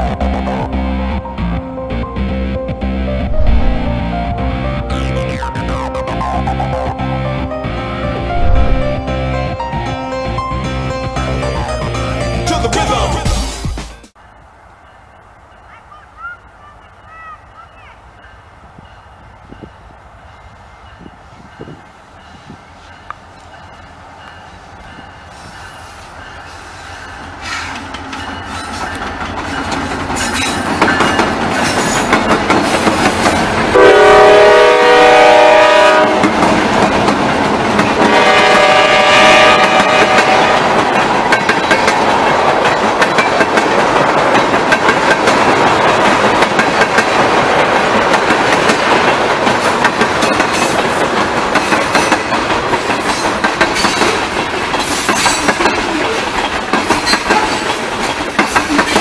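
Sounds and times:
train wheels clickety-clack: 20.9s - 33.8s, 35.8s - 59.0s
locomotive horn blasts: 33.7s - 36.3s, 38.0s - 40.8s.

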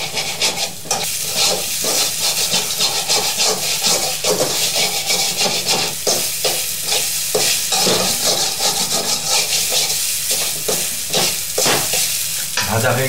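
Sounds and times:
spatula scraping metal pan: 0.0s - 12.1s
eggs sizzling in oil: 0.0s - 13.0s.

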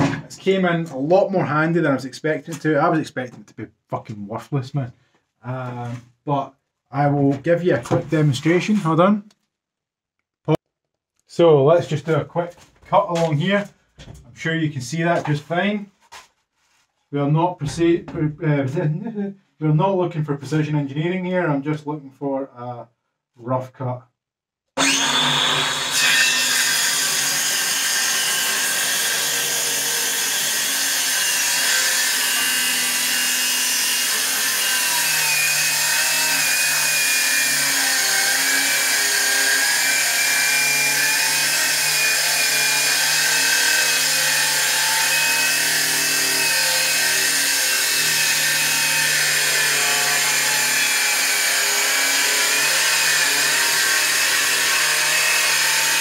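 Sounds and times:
circular saw cutting wood: 24.8s - 56.0s.

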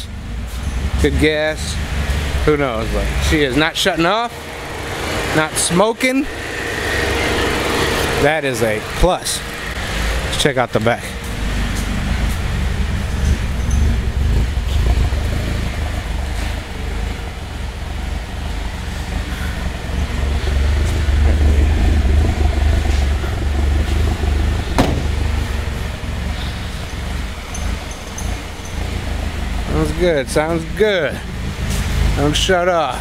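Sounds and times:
car engine idling: 0.0s - 33.0s.

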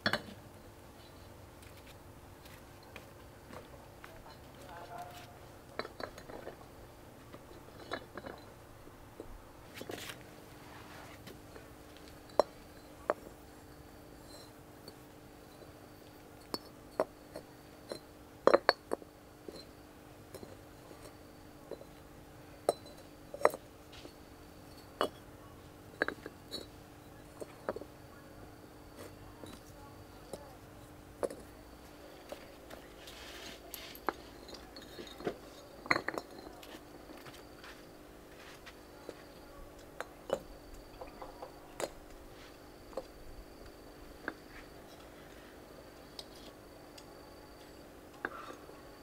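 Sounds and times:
faint steady hum: 0.0s - 49.0s
hard objects clinking: 2.7s - 6.7s, 7.3s - 8.6s, 11.4s - 22.0s, 22.6s - 27.9s, 28.8s - 45.1s.

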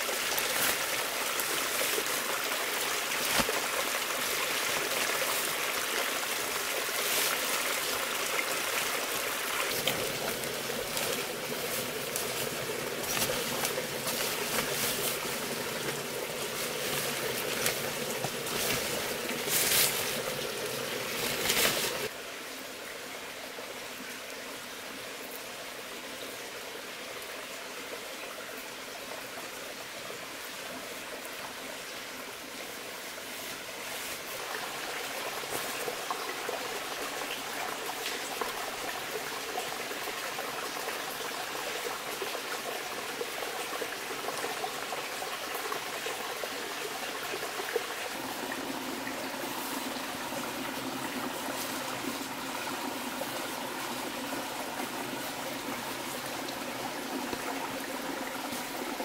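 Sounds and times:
running water rushing: 0.0s - 59.0s.

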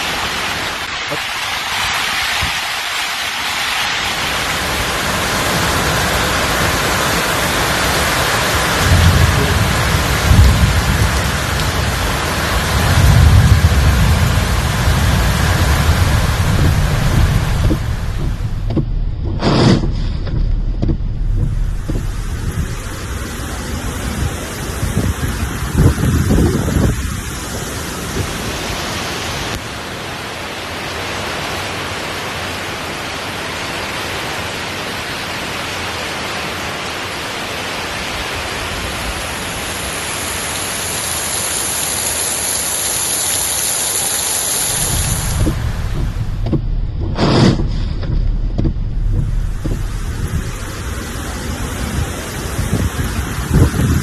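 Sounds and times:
heavy rain hissing: 0.0s - 54.0s
wind buffeting microphone: 4.1s - 29.5s, 44.7s - 54.0s.

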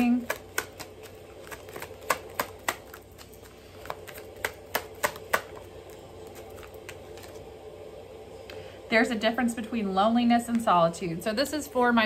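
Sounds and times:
cards being shuffled: 0.0s - 7.5s.

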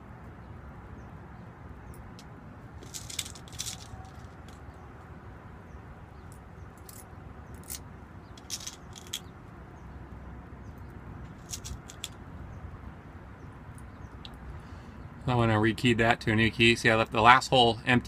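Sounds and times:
small metallic clicks: 1.9s - 4.7s, 6.2s - 9.3s, 11.2s - 12.2s.

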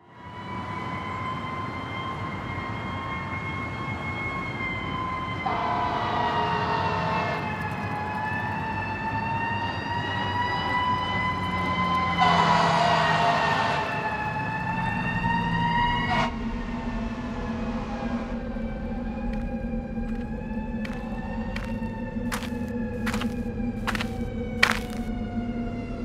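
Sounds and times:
town traffic noise: 0.0s - 26.0s
emergency siren wailing: 0.1s - 16.4s.

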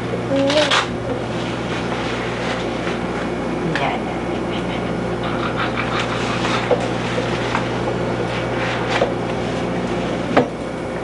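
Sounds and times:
electrical hum: 0.0s - 11.0s
paper napkin rustling: 5.9s - 10.2s.

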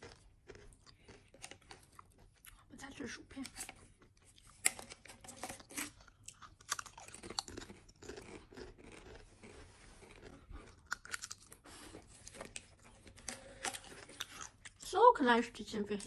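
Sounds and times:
potato chips crunching: 0.0s - 3.0s, 4.0s - 11.6s.

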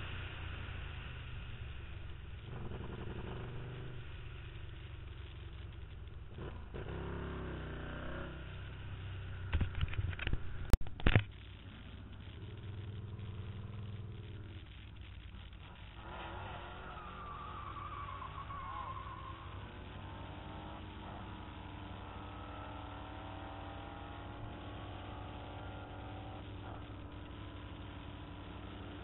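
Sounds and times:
engine revving: 6.3s - 8.9s, 19.3s - 29.0s.

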